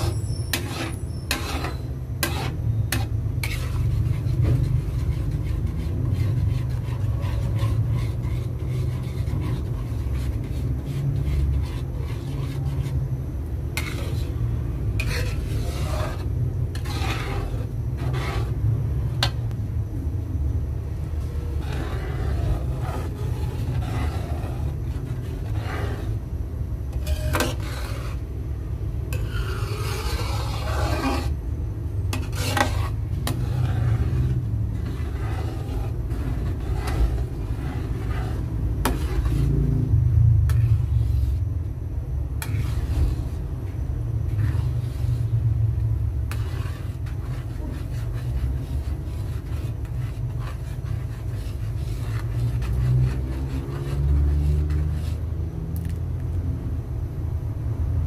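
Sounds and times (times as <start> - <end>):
metal spoon scraping a metal pan: 0.0 - 13.1, 13.8 - 18.6, 26.9 - 28.2, 29.1 - 31.4, 32.1 - 39.6, 42.4 - 43.4, 46.2 - 55.3
steady low rumble: 2.2 - 55.6.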